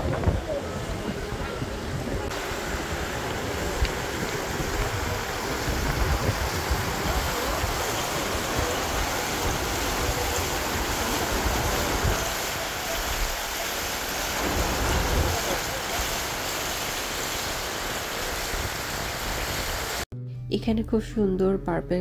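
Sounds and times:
wind buffeting microphone: 0:00.0 - 0:12.6
fountain water splashing: 0:00.0 - 0:20.0.

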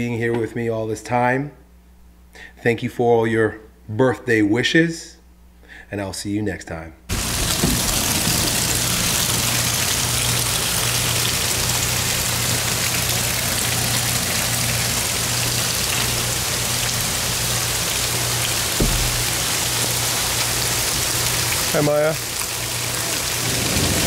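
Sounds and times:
heavy rain: 0:07.1 - 0:24.0
soft knock: 0:18.8 - 0:19.3.

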